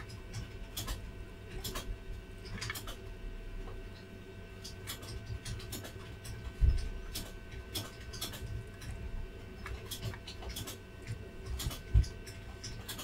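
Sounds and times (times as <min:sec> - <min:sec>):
soldering clicks and ticks: 0:00.0 - 0:01.0, 0:04.6 - 0:09.0, 0:09.6 - 0:13.0
faint electrical whine: 0:00.0 - 0:13.0.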